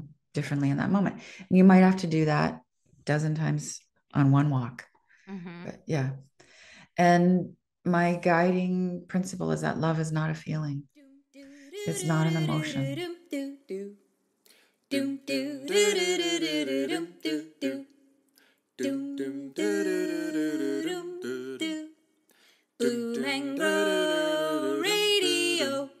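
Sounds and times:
person humming and singing wordlessly: 0:05.3 - 0:05.7, 0:11.7 - 0:13.9, 0:18.8 - 0:21.8, 0:22.8 - 0:26.0.

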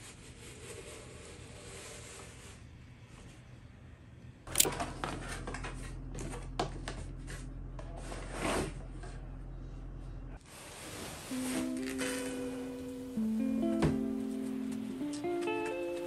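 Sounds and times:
low steady hum: 0:03.0 - 0:16.0
cardboard rustling and scraping: 0:04.7 - 0:09.2.

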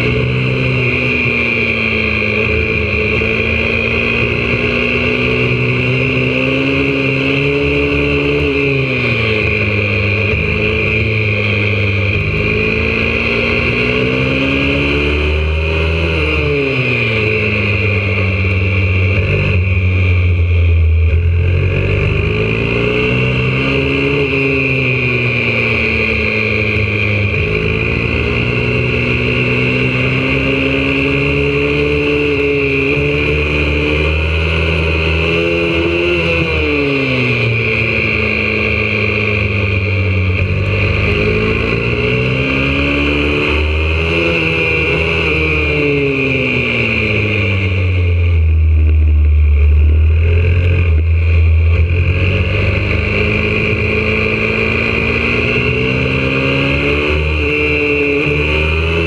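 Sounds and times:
motorbike engine revving: 0:00.0 - 0:59.0.

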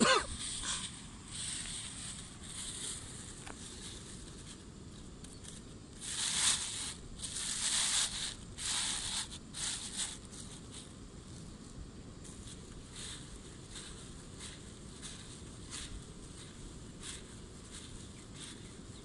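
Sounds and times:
plastic bag crinkling: 0:05.9 - 0:10.6.

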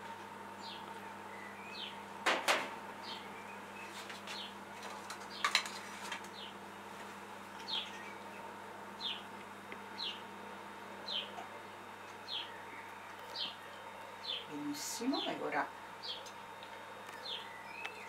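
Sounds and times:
faint steady hum: 0:00.0 - 0:18.0
small bird chirping: 0:07.6 - 0:09.3, 0:12.0 - 0:15.4, 0:16.0 - 0:16.4, 0:17.1 - 0:18.0.

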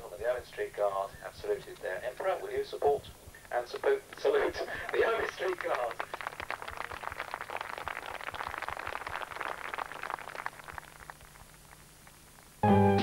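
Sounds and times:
audience applauding: 0:03.6 - 0:12.6.

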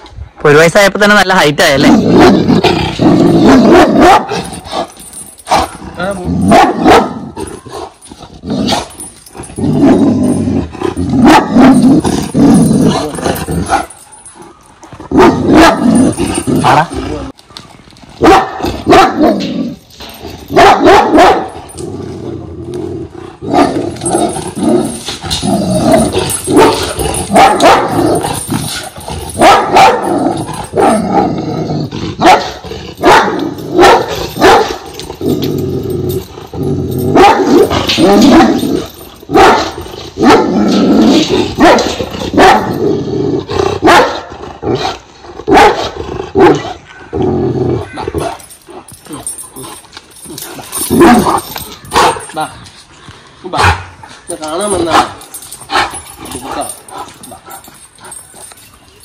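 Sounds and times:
dog barking deeply: 0:03.4 - 0:04.4, 0:06.4 - 0:07.4, 0:11.2 - 0:12.0, 0:15.1 - 0:17.0, 0:18.2 - 0:19.5, 0:20.5 - 0:21.6, 0:23.4 - 0:24.0, 0:25.9 - 0:28.3, 0:29.4 - 0:31.4, 0:32.2 - 0:34.8, 0:37.1 - 0:40.8, 0:41.6 - 0:42.8, 0:43.8 - 0:44.9, 0:45.5 - 0:47.2, 0:53.5 - 0:53.9, 0:54.8 - 0:55.2
dog growling: 0:07.3 - 0:13.9, 0:21.7 - 0:29.3.

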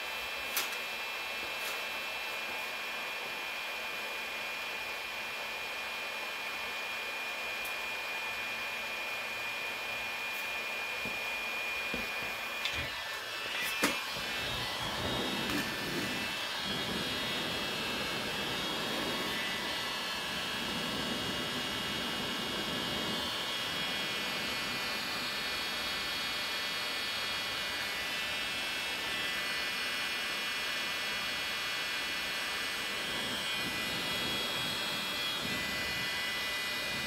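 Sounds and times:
heat gun blowing air: 0:07.4 - 0:37.0.

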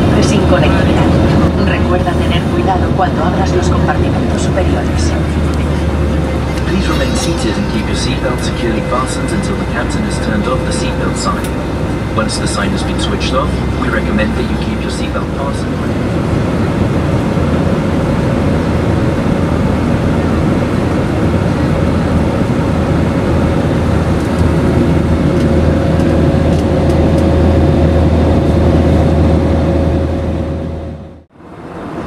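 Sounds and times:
rushing airflow: 0:00.0 - 0:19.9
deep low rumble: 0:00.0 - 0:31.3
aircraft engines droning: 0:00.0 - 0:32.0.

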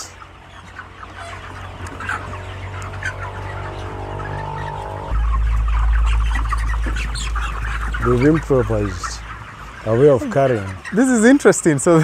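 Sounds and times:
chickens chirping and clucking: 0:00.0 - 0:12.0
steady low rumble: 0:03.6 - 0:10.2.

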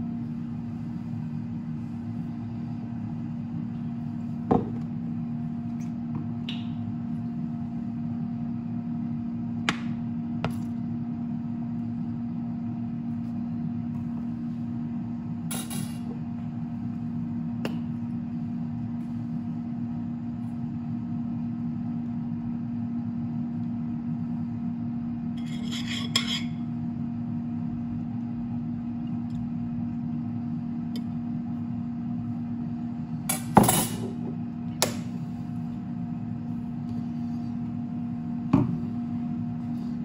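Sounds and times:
low mechanical hum: 0:00.0 - 0:40.0.

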